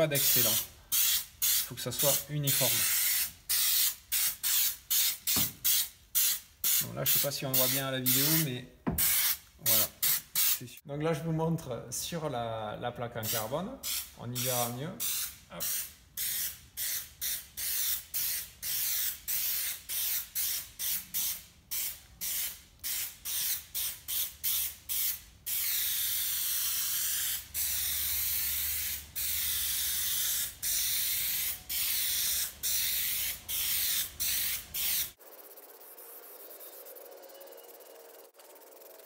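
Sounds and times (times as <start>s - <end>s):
aerosol can hissing: 0.2s - 10.6s, 15.0s - 35.2s.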